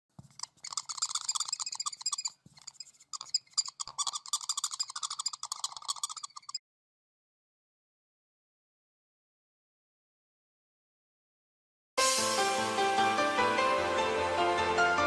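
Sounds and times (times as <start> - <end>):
fast bird chirping trills: 0.3 - 6.6.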